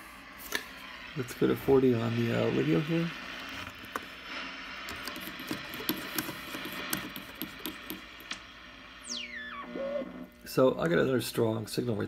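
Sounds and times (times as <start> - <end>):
radio static hiss: 0.0 - 5.0.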